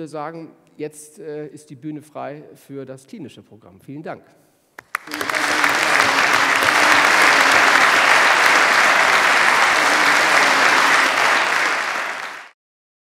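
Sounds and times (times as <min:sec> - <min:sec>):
audience applauding: 0:04.8 - 0:12.6.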